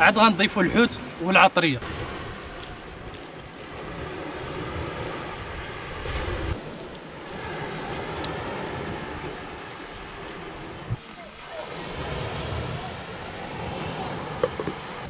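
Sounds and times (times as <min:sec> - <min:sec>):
sea surf: 0:00.0 - 0:15.0
wind rushing: 0:01.8 - 0:11.0
low wind rumble on microphone: 0:01.8 - 0:15.0.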